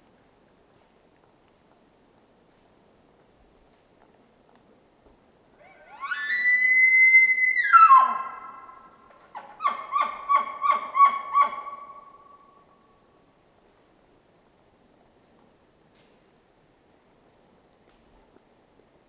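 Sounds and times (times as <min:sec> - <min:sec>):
elk bugling: 0:05.6 - 0:12.4.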